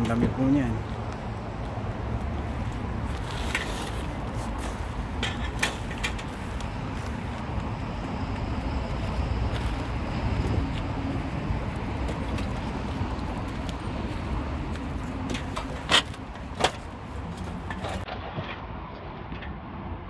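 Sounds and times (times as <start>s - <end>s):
low vehicle rumble: 0.0s - 18.1s.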